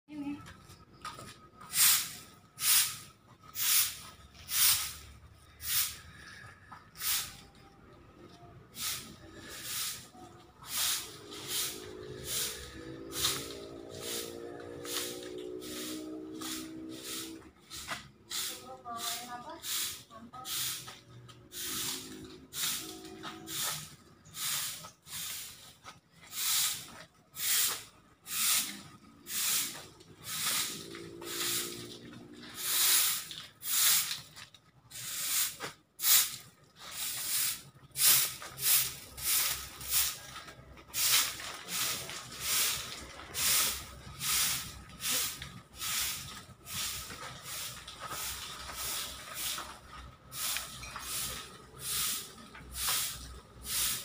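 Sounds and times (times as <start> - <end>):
short hissing swishes: 1.8 - 6.1, 8.8 - 21.0, 26.3 - 31.9.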